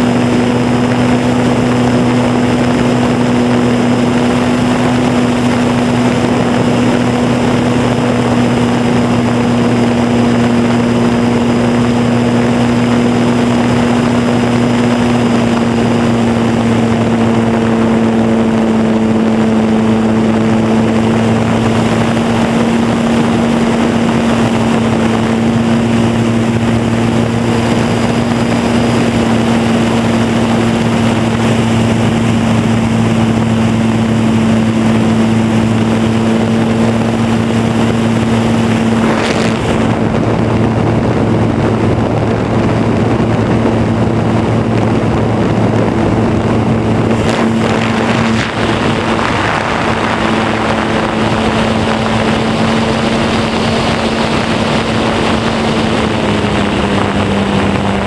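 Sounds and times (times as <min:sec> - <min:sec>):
model airplane motor and propeller: 0:00.0 - 0:58.0
air rushing past: 0:20.5 - 0:58.0.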